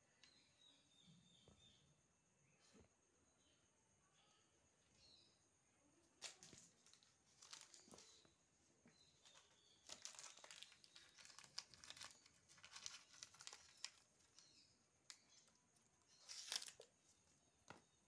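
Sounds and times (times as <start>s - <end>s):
plastic packet rustling: 6.2s - 8.2s, 9.2s - 14.5s, 16.1s - 16.9s.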